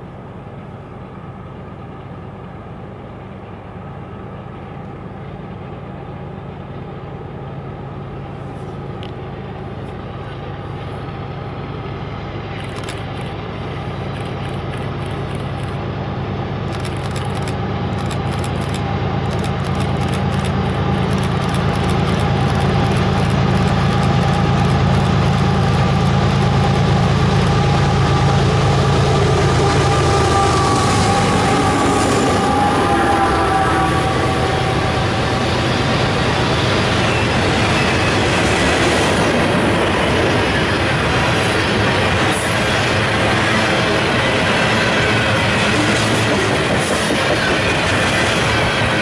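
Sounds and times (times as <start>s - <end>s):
diesel locomotive engine drone: 0.0s - 49.0s
train wheels clicking on rails: 12.5s - 15.9s, 16.6s - 32.7s, 34.6s - 49.0s.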